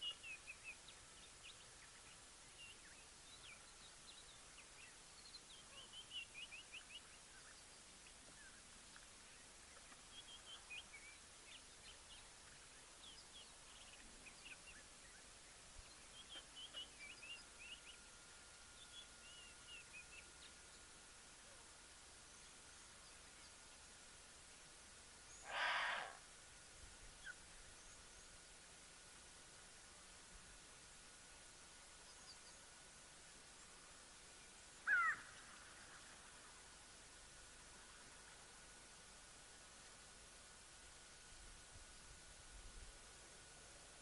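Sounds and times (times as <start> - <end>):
birds chirping: 0.0 - 28.7, 31.3 - 36.6
background hiss: 0.0 - 44.0.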